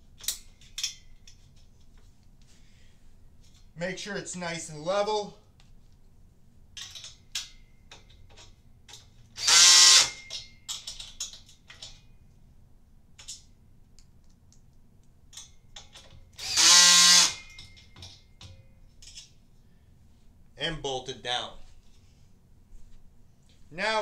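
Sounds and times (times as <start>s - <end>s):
small clicks of bolts: 0.0s - 2.5s, 6.8s - 9.4s, 10.0s - 12.4s, 13.1s - 19.4s
cordless drill driving bolts: 9.3s - 10.4s, 16.3s - 17.8s.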